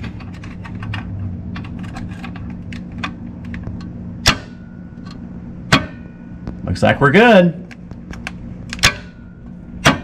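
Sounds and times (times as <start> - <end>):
wire clicking and scraping on metal: 0.0 - 6.1
steady low hum: 0.0 - 10.0.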